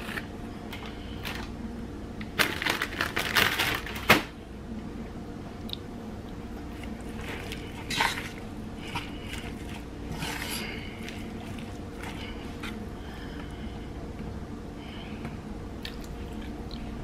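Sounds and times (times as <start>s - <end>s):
lettuce squishing and rustling: 6.3s - 13.5s
fork scraping a bowl: 7.2s - 12.8s.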